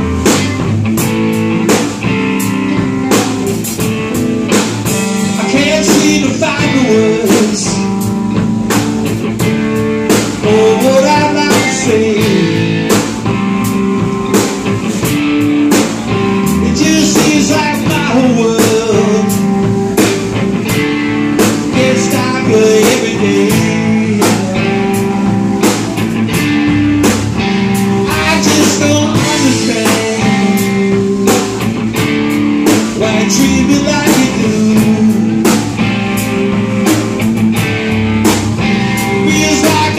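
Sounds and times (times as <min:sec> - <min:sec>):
drum kit: 0:00.0 - 0:39.9
electric bass: 0:00.0 - 0:39.9
electric guitars: 0:00.0 - 0:39.9
man singing into microphone: 0:05.4 - 0:08.0, 0:10.4 - 0:12.9, 0:16.6 - 0:19.6, 0:21.7 - 0:25.1, 0:28.0 - 0:31.5, 0:33.0 - 0:35.6, 0:39.1 - 0:39.9.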